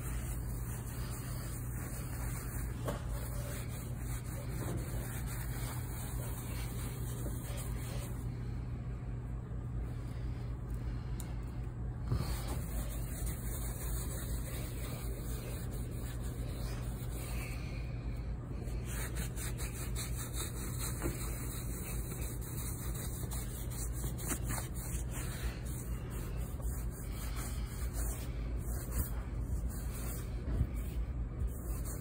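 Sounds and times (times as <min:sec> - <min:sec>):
cloth wiping metal surface: 0:00.0 - 0:08.2
steady low hum: 0:00.0 - 0:32.0.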